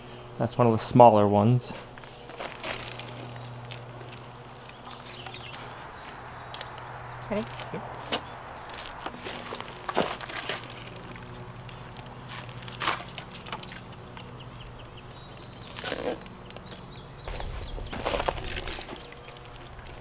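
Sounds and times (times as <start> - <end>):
steady low hum: 0.0 - 20.0
plastic bag crinkling: 2.3 - 5.6, 7.4 - 14.4.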